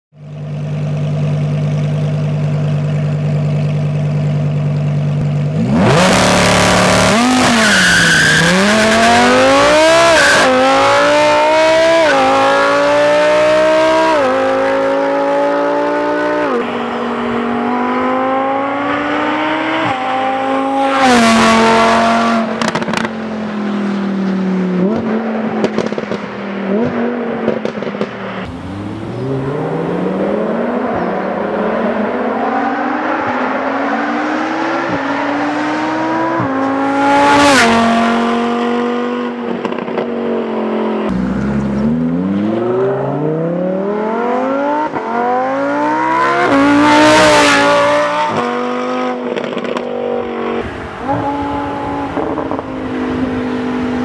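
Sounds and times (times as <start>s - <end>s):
sports car engine revving: 0.3s - 24.0s, 24.6s - 54.0s.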